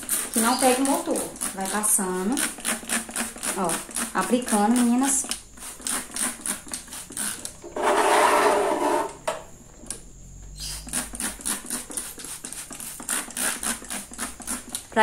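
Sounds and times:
spray bottle squirts: 0.0s - 7.6s, 10.6s - 14.9s.

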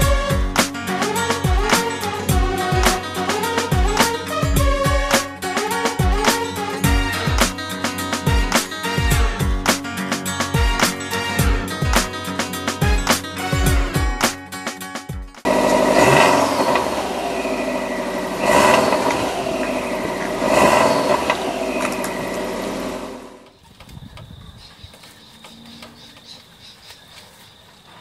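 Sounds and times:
car engine revving: 0.0s - 8.6s, 15.4s - 23.5s.

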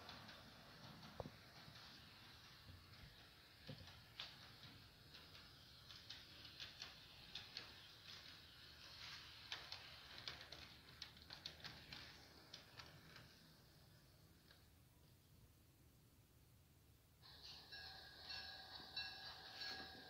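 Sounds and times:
model train clicking on track: 0.0s - 14.7s.

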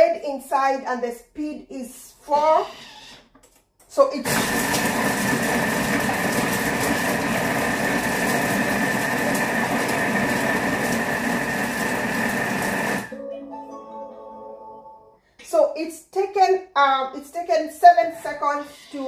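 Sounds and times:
food processor motor whirring: 4.3s - 13.1s.

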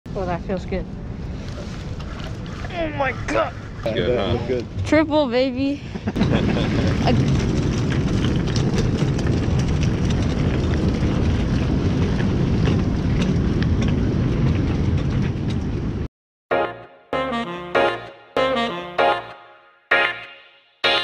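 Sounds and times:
wind buffeting microphone: 0.1s - 16.1s.

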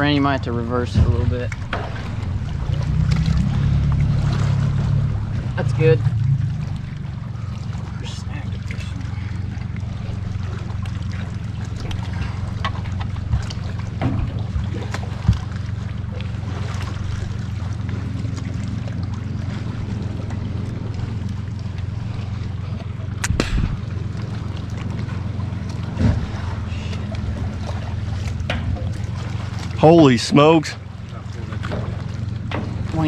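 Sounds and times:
boat motor idling: 0.0s - 33.0s
water splashes: 0.0s - 33.0s.

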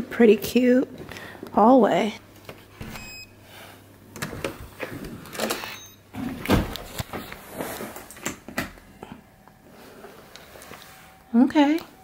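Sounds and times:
keycard lock beep: 2.9s - 3.3s, 5.6s - 6.0s.

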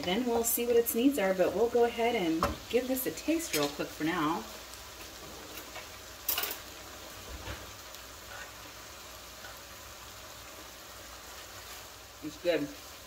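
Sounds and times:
food sizzling in a skillet: 0.0s - 13.0s
spoon scraping a pan: 3.4s - 3.8s, 8.2s - 8.6s.

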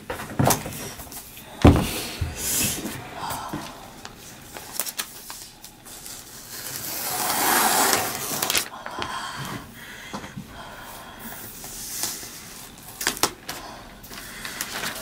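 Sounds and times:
plastic sheet rustling: 4.4s - 8.8s, 14.2s - 15.0s.

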